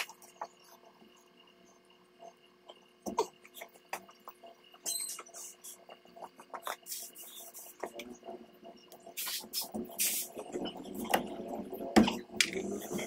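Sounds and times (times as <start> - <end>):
aerosol spray hissing: 9.2 - 10.4.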